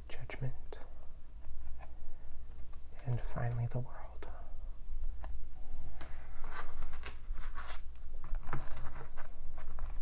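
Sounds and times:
steady low hum: 0.0s - 8.5s.

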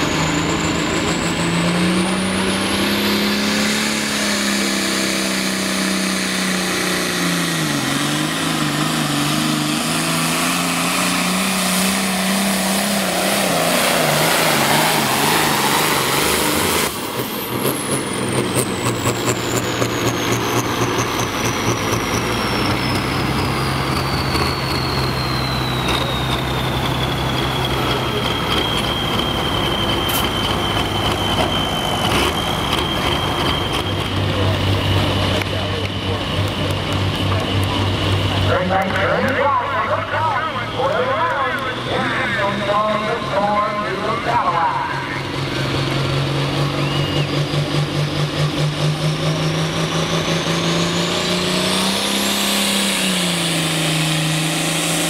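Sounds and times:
diesel tractor engine revving: 0.0s - 55.0s
turbo whistle: 23.9s - 34.2s, 46.6s - 47.6s.

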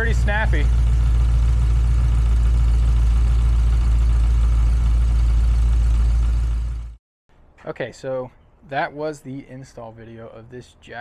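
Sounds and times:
engine idling: 0.0s - 7.0s.

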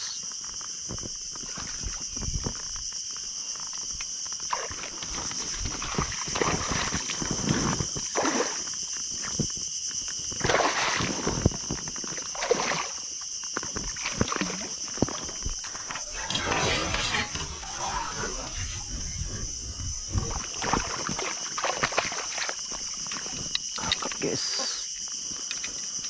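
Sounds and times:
fish splashing in water: 10.4s - 11.4s, 12.3s - 13.1s, 20.3s - 23.3s.

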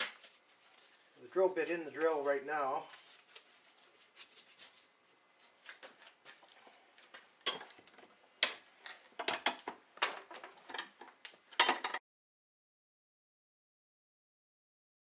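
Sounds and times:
metal clinks and clanks: 7.4s - 7.8s.

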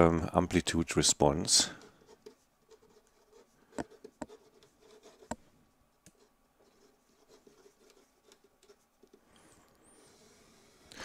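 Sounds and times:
marker pen scratching on paper: 1.7s - 5.5s, 6.1s - 9.3s.

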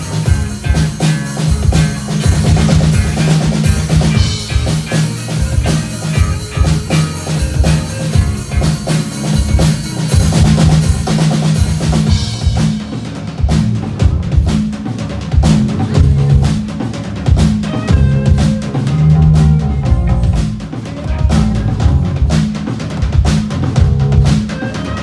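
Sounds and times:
drum hits: 0.0s - 25.0s
rock band playing loudly: 0.0s - 25.0s.

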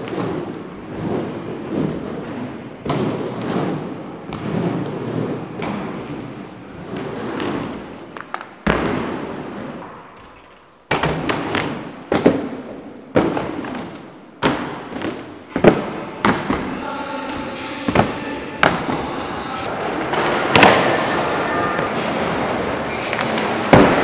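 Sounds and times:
skate wheels rolling: 0.0s - 24.0s
skates knocking on ramp: 10.9s - 19.2s, 21.8s - 24.0s.

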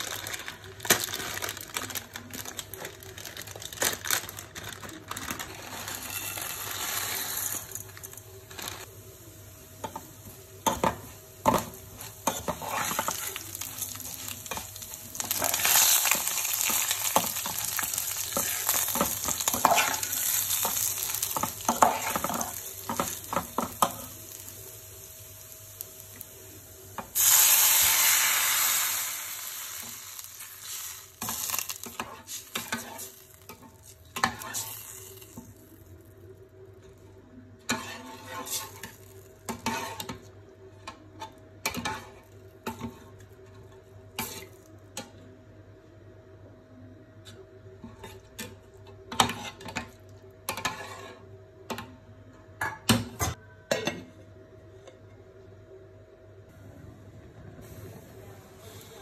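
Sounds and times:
water sizzling in hot pot: 5.7s - 33.6s
metal spoon scraping in pot: 37.7s - 38.8s, 50.5s - 51.3s.

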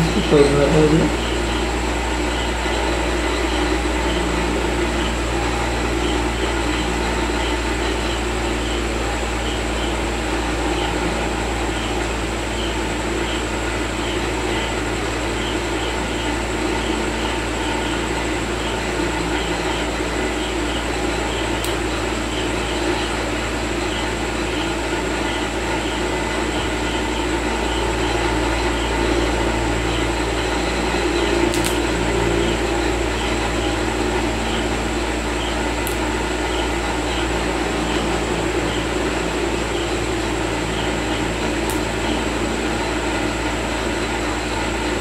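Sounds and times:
fan-like drone: 0.0s - 45.0s
low mains hum: 0.0s - 45.0s
thin high whine: 0.0s - 45.0s
faint clicks: 31.5s - 31.9s, 41.7s - 41.9s.

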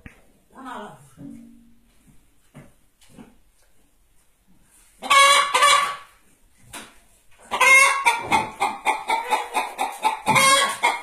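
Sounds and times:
hen cackling: 5.0s - 6.1s, 7.5s - 11.0s
hen clucking: 5.0s - 6.1s, 7.4s - 11.0s.

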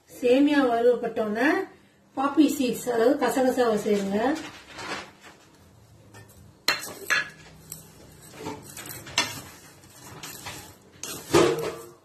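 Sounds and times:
metal spatula scraping metal pan: 6.1s - 12.0s.

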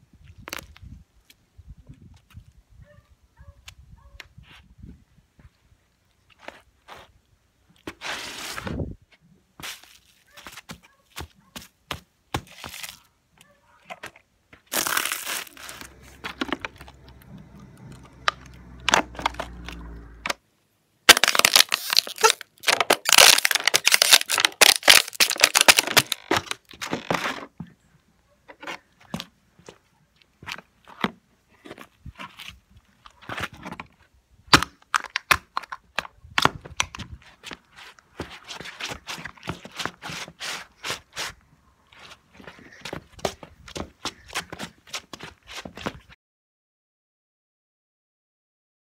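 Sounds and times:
footsteps on pavement: 14.5s - 20.3s, 37.2s - 41.3s, 41.9s - 46.1s
plastic bottles crushed underfoot: 14.7s - 17.1s, 21.1s - 27.4s.

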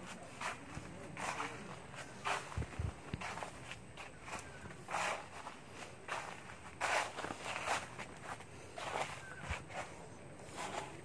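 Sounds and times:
footsteps scuffing on path: 0.0s - 11.0s.

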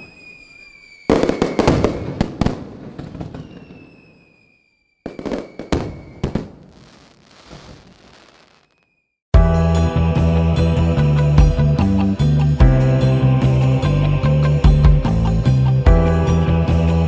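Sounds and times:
thin falling whistle: 0.0s - 2.2s, 3.3s - 6.4s, 8.5s - 9.2s
fireworks cracking and crackling: 0.0s - 9.0s.

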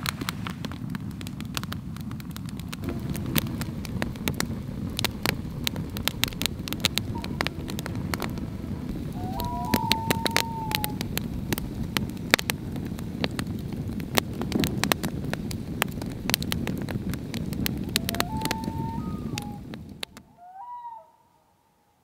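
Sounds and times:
campfire crackling and popping: 0.0s - 20.3s
low rush of flame: 0.0s - 20.3s
thin whistling tone: 7.1s - 7.7s, 9.1s - 11.0s, 18.0s - 19.6s.

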